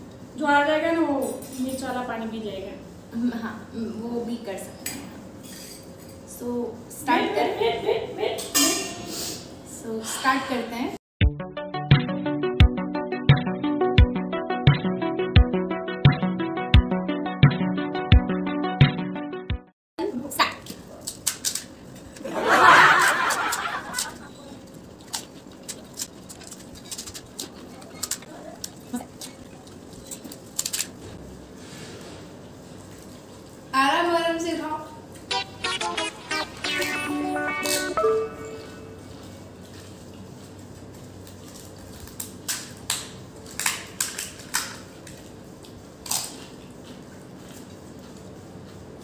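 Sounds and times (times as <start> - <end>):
person laughing: 22.4 - 24.4
crisp shells cracking and crunching: 24.6 - 28.8, 41.2 - 46.7.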